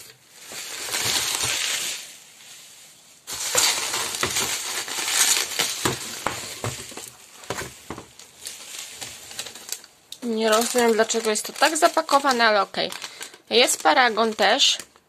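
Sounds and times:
bubble wrap crinkling: 0.0s - 15.0s
plastic bottles clicking: 3.3s - 15.0s.

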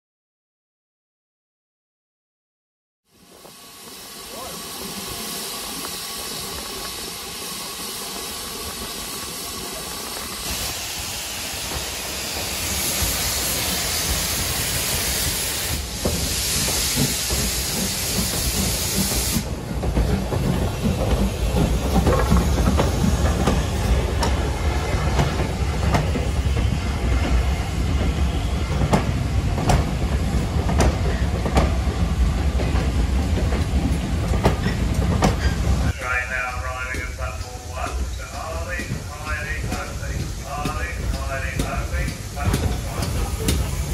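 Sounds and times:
steam hissing from locomotive: 3.1s - 43.9s
train rumbling past: 3.1s - 43.9s
wheels clacking over rail joints: 17.0s - 27.4s, 36.9s - 43.9s.

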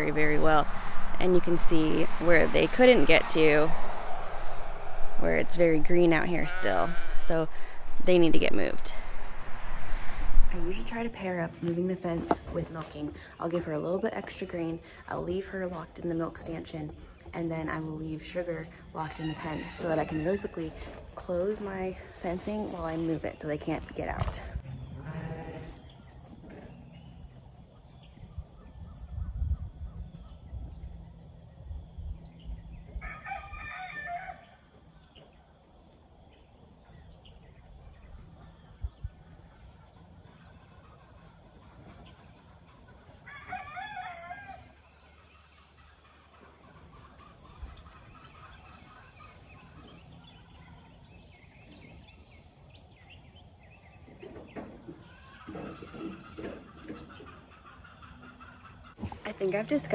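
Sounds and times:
low rumble: 0.0s - 11.6s
rooster crowing: 33.0s - 34.5s, 43.2s - 44.7s.

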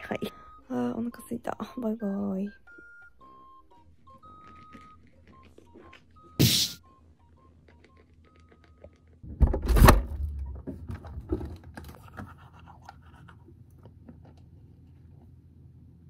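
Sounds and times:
loud thump and rustle: 9.3s - 11.6s.

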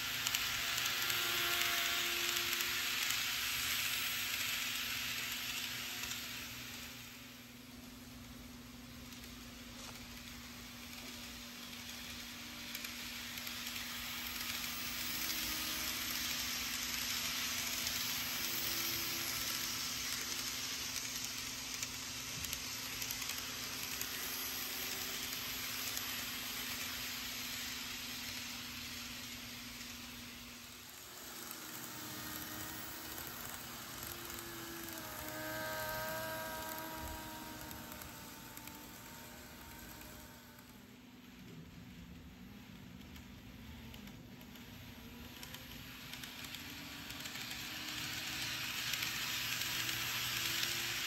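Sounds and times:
model train wheels on rails: 0.0s - 51.0s
whining train motor: 0.0s - 51.0s
low motor hum: 30.8s - 40.9s.

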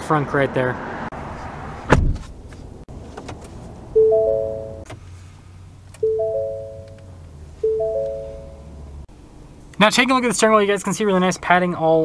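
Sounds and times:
three-note car chime: 4.0s - 4.9s, 6.0s - 8.8s.

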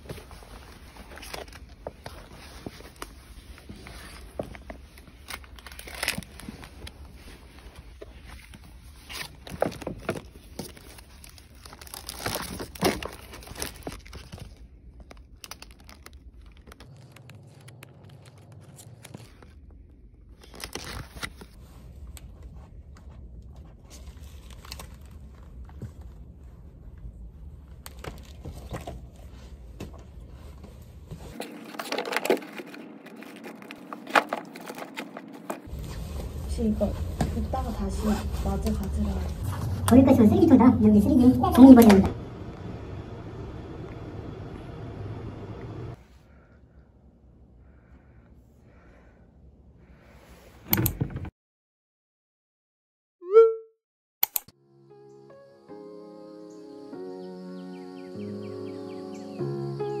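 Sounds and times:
papers rustling and crinkling: 0.0s - 26.9s, 27.6s - 39.8s.

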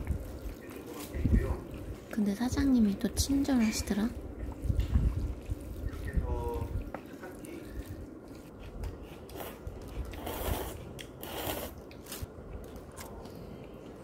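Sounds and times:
noisy slurping of noodles: 5.0s - 12.2s.

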